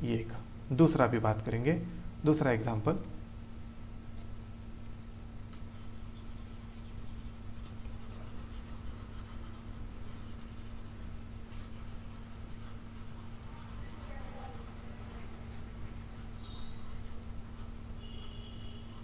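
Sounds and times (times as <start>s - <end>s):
low electrical hum: 0.0s - 19.0s
stylus scratching on tablet: 5.7s - 19.0s.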